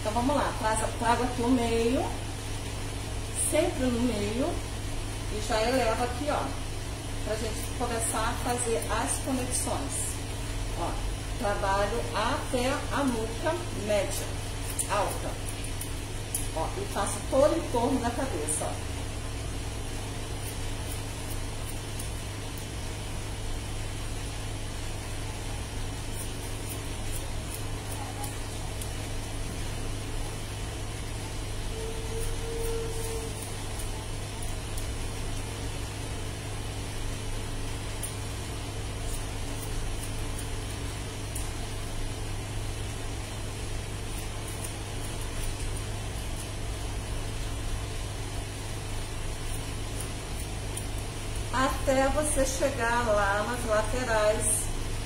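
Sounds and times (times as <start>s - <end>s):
low hum with hiss: 0.0s - 55.0s
scissors snipping hair: 14.2s - 17.6s, 20.4s - 22.7s, 26.1s - 29.1s, 33.3s - 35.4s, 39.0s - 41.6s, 44.1s - 46.6s, 49.4s - 51.1s.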